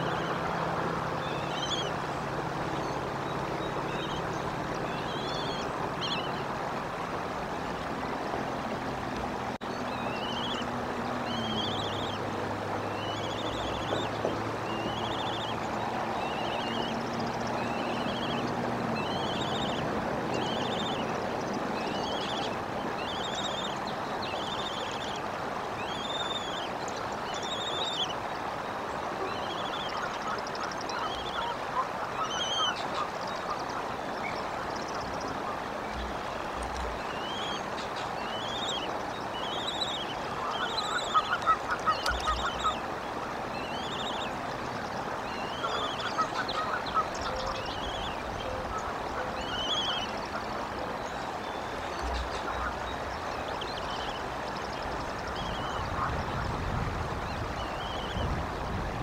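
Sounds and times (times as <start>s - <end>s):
eaglet peeping: 1.2s - 2.0s, 2.8s - 6.5s, 9.8s - 19.8s, 20.4s - 28.2s, 29.2s - 42.9s, 43.6s - 56.5s, 57.6s - 58.3s.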